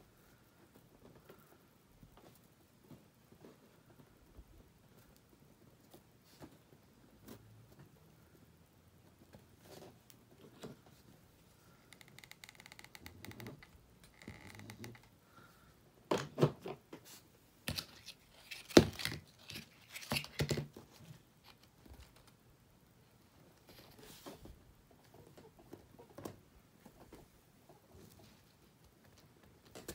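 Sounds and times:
ribbon rustling: 17.1s - 22.2s.

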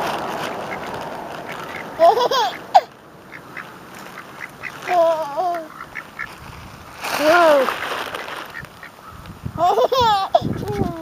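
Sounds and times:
ducks and geese calling: 0.0s - 6.4s, 7.2s - 9.4s.

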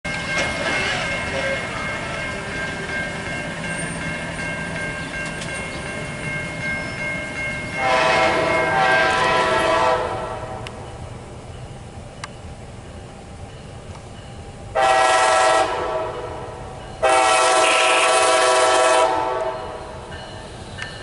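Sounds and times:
railroad crossing bell ringing: 0.0s - 21.0s
train horn blast: 7.8s - 10.7s, 14.8s - 19.9s.

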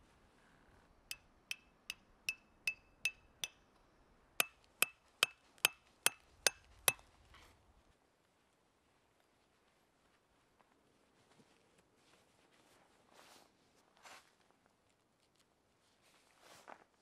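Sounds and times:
hammer striking metal tent peg: 1.1s - 3.6s, 4.4s - 7.0s.

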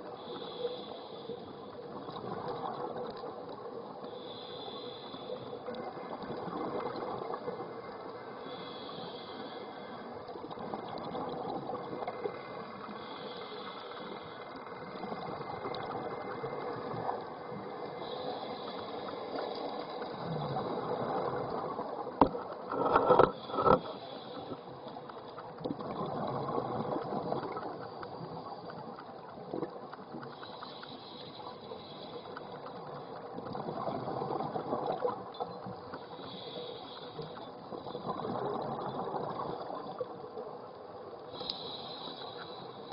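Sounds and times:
diver regulator breathing: 0.2s - 1.8s, 4.0s - 6.1s, 8.2s - 10.3s, 12.4s - 14.7s, 17.7s - 25.4s, 30.3s - 33.3s, 35.9s - 38.4s, 41.3s - 42.9s.

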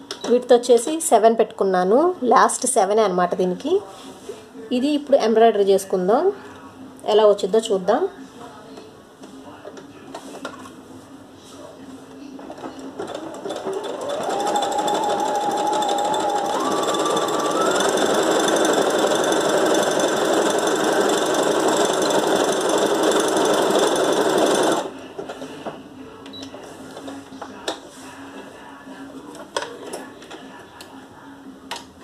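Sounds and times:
sewing machine motor whine: 13.0s - 24.9s.

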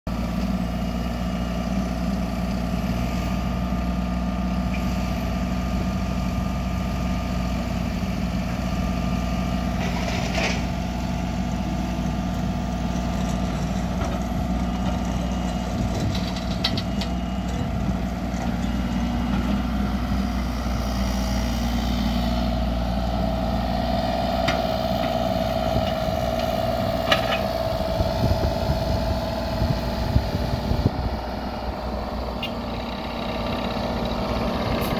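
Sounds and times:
diesel engine running steadily: 0.1s - 34.9s
hydraulics working: 12.1s - 34.9s.

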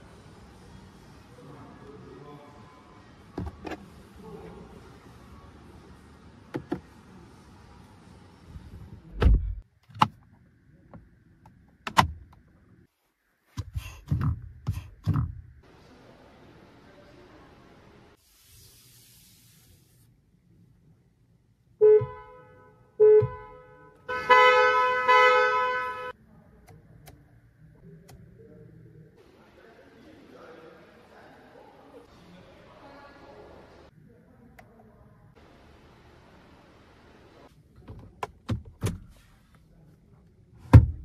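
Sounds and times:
car door clicks and thumps: 9.2s - 10.2s, 11.8s - 12.4s, 37.8s - 39.1s, 40.7s - 41.0s
car horn honking: 21.8s - 26.1s.

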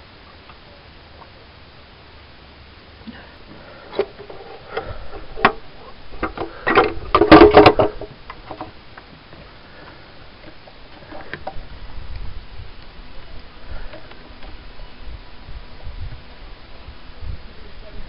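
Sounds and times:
hands handling car engine parts: 3.5s - 11.6s.

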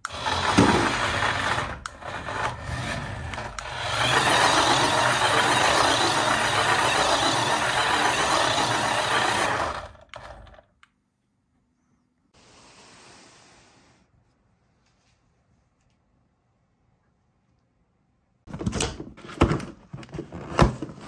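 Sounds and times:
toy car electric motor whirring: 0.0s - 10.6s.

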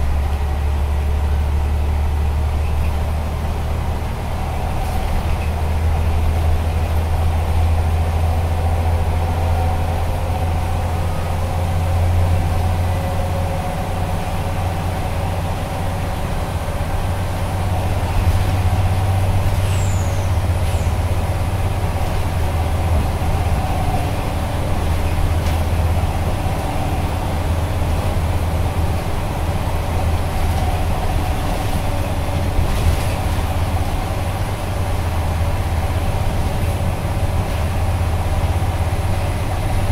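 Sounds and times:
bus engine droning: 0.0s - 39.9s
road noise: 0.0s - 39.9s.

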